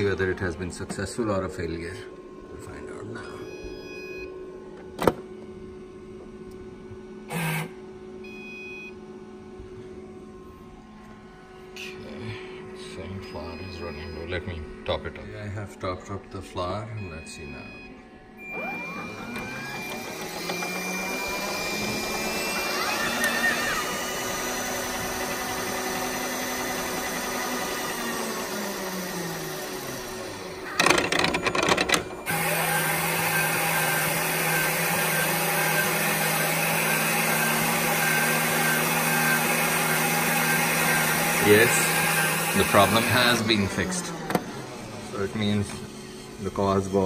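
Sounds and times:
kneading motor hum: 0:00.0 - 0:47.0
motors whining: 0:00.0 - 0:47.0.

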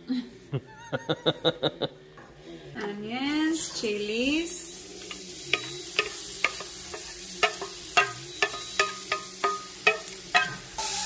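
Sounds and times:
wooden spatula tapping metal bowl: 0:05.1 - 0:10.7.

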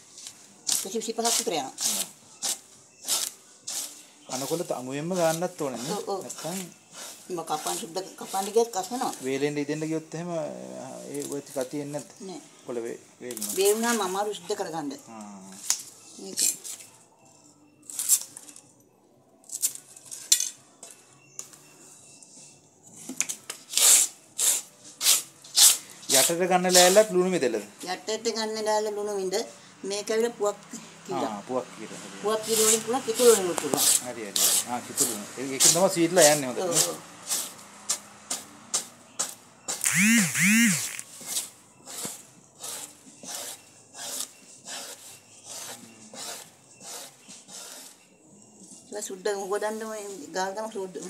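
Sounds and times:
leaf scraped on wooden board: 0:00.2 - 0:09.5, 0:23.6 - 0:27.4, 0:32.0 - 0:48.1.

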